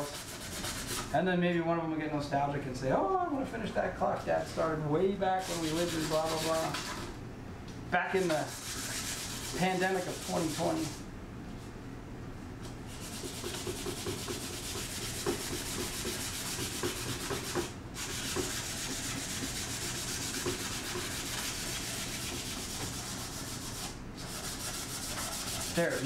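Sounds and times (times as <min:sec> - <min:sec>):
sandpaper rubbing on wood: 0:00.0 - 0:01.1, 0:05.4 - 0:07.0, 0:08.2 - 0:11.0, 0:12.9 - 0:26.0.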